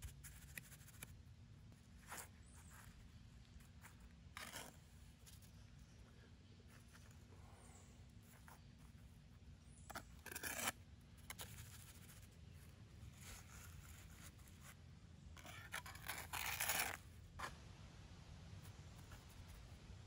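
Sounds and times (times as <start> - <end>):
trowel scraping mortar: 9.9 - 11.5, 15.4 - 17.0.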